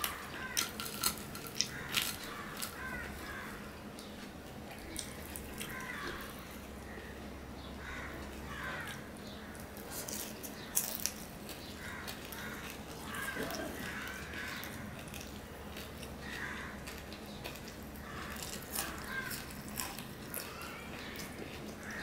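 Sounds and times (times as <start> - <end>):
crunchy clicks: 0.0 - 6.3
person chewing food: 0.0 - 6.9, 8.2 - 22.0.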